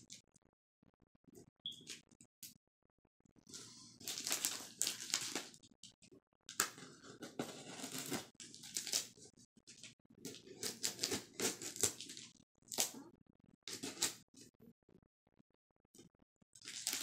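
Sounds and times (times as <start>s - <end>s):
plastic crinkling: 4.0s - 5.6s, 7.6s - 9.1s, 9.7s - 13.0s, 16.6s - 17.0s
tape tearing: 7.7s - 9.0s.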